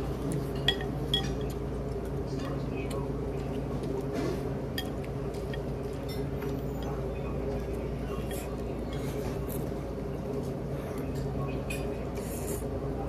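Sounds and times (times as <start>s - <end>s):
low background hum: 0.0s - 13.0s
utensils clinking against bowl: 0.4s - 1.7s, 4.2s - 9.6s.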